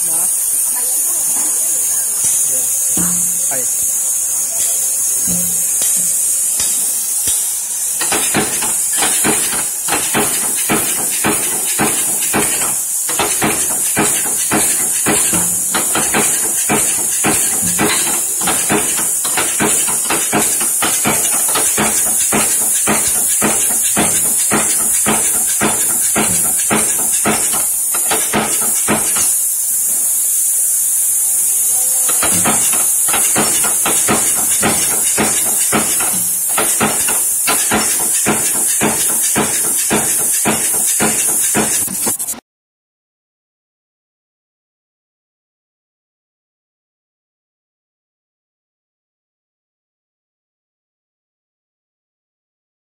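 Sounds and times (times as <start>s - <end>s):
steady high hiss: 0.0s - 42.3s
punch press metal strikes: 3.0s - 3.5s, 5.3s - 29.3s, 32.1s - 42.2s.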